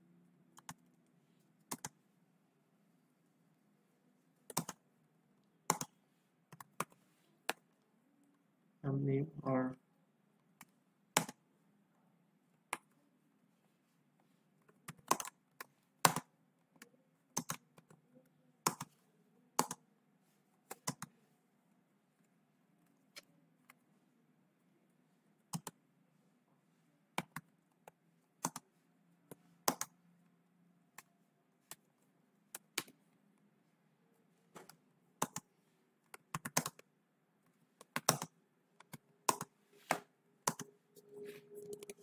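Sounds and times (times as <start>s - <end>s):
computer keyboard typing: 0.6s - 0.9s, 1.7s - 2.0s, 4.5s - 4.8s, 5.7s - 7.7s, 14.7s - 16.3s, 17.3s - 18.0s, 18.6s - 19.0s, 19.6s - 19.8s, 20.7s - 21.1s, 25.5s - 25.8s, 28.4s - 28.7s, 29.6s - 30.0s, 35.2s - 35.5s, 36.1s - 36.9s, 37.8s - 39.6s, 40.4s - 40.7s, 41.5s - 42.0s.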